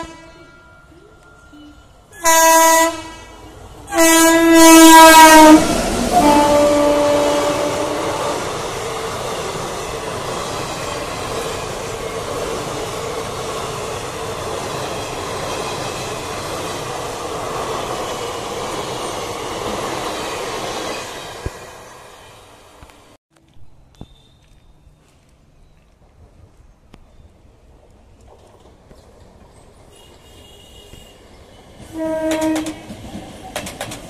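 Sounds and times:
locomotive horn: 0:00.0 - 0:00.8, 0:01.6 - 0:08.5, 0:29.9 - 0:31.2, 0:31.8 - 0:32.9
train wheels rattling on track: 0:00.0 - 0:23.1, 0:26.2 - 0:34.0.

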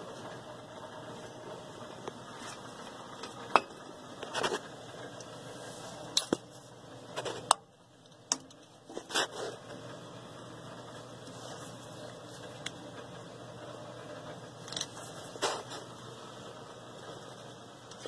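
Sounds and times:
tools clinking and scraping: 0:14.6 - 0:15.8.

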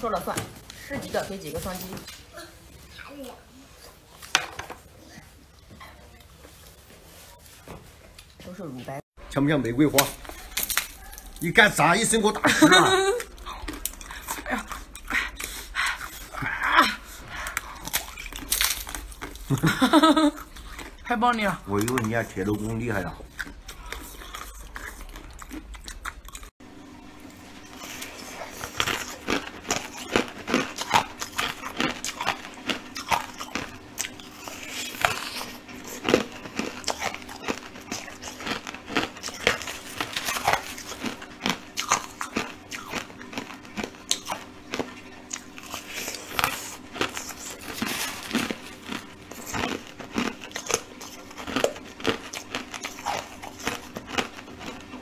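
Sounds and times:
faint steady hum: 0:09.2 - 0:55.0
crunching ice: 0:09.9 - 0:12.2, 0:17.8 - 0:19.8, 0:27.8 - 0:55.0.

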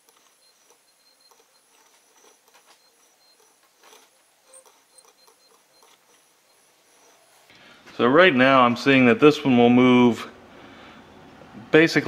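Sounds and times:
light clicks and rubbing: 0:00.0 - 0:07.3.

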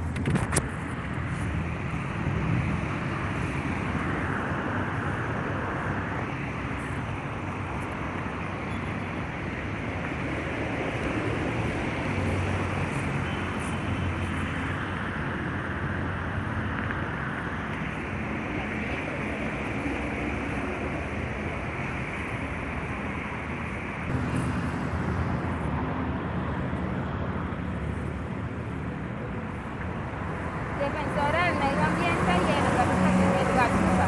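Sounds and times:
cars passing: 0:00.0 - 0:34.0
road traffic noise: 0:00.0 - 0:34.0.

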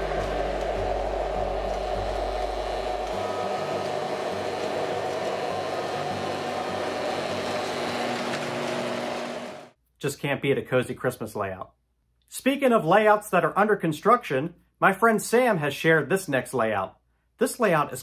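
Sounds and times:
low hum: 0:00.0 - 0:09.7
model train rolling: 0:00.0 - 0:09.8.

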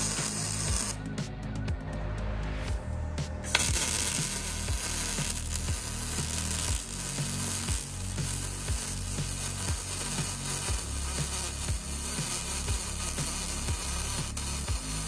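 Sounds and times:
welding arc crackling: 0:00.0 - 0:01.0, 0:03.5 - 0:15.0
background music with low beat: 0:00.0 - 0:15.0.

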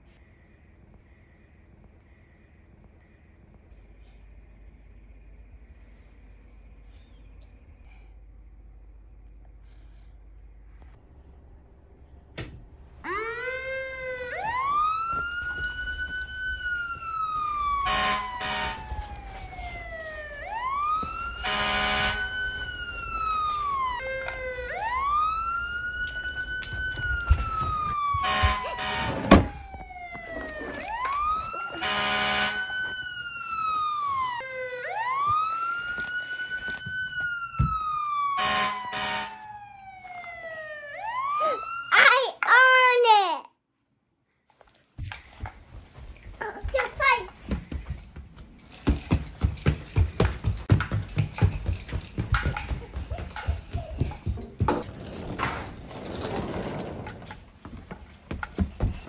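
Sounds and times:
fire engine siren wailing: 0:13.0 - 0:42.0
horn blasts: 0:17.8 - 0:19.0, 0:21.4 - 0:22.5, 0:28.1 - 0:29.6, 0:31.7 - 0:32.9, 0:38.4 - 0:39.5.

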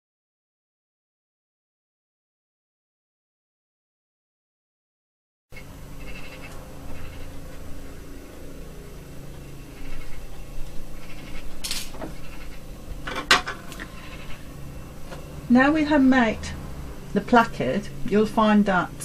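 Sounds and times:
low hum: 0:05.5 - 0:19.0.

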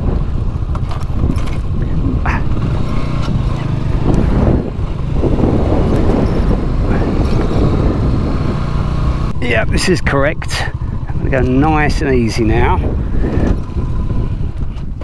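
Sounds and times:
motorbike engine rumbling: 0:00.0 - 0:15.0
rattling clicks: 0:00.7 - 0:01.8.

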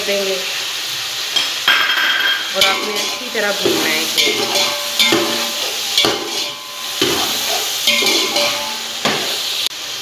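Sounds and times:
steady sizzle: 0:00.0 - 0:10.0
metal spoon scraping a pot: 0:02.5 - 0:08.9.

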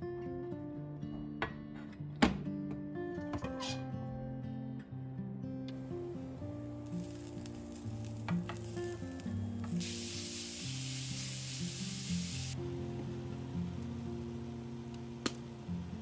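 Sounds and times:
meat sizzling in a pan: 0:05.9 - 0:12.6.

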